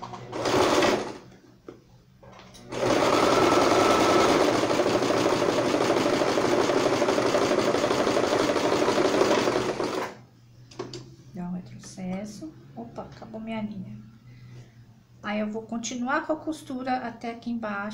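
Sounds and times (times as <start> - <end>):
sewing machine stitching: 0.0 - 1.2, 2.7 - 10.2.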